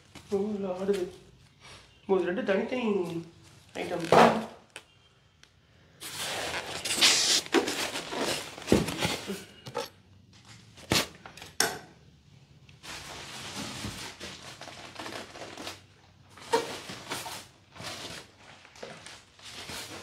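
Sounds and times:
plastic bag rustling: 0:03.1 - 0:04.5, 0:06.0 - 0:11.2, 0:12.8 - 0:20.0
foam scraping on plastic: 0:06.0 - 0:09.9.

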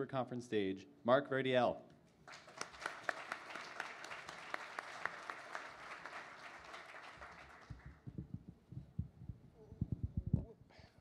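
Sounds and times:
audience applauding: 0:02.3 - 0:08.0.

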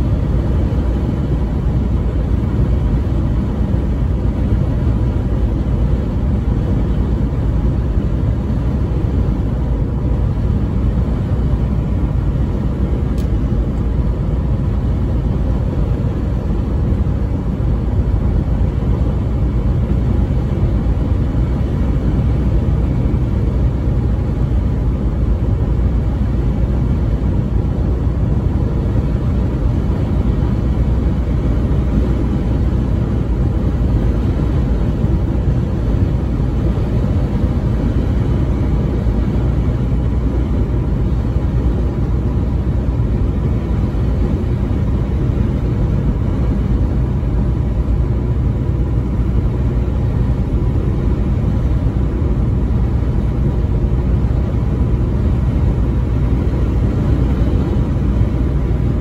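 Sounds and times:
road and engine rumble in cabin: 0:00.0 - 0:59.0.

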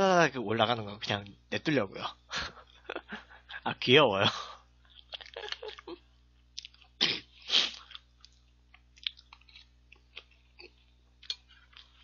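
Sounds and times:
chewing crunchy food: 0:04.8 - 0:12.0.

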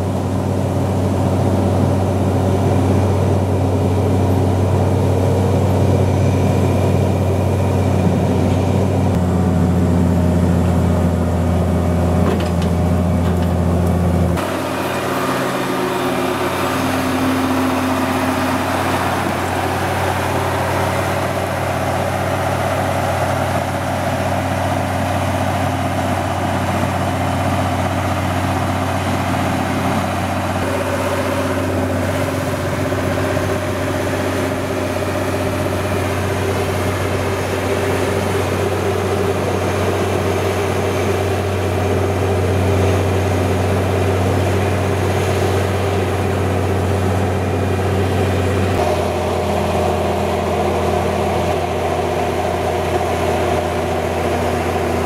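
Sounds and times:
motor grader diesel engine running: 0:00.0 - 0:55.0.

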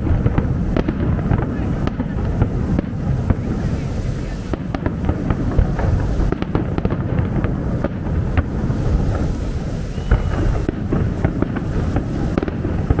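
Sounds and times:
fireworks cracks and bangs: 0:00.0 - 0:13.0
fireworks rumble: 0:00.0 - 0:13.0
high firework whistle: 0:07.9 - 0:13.0.

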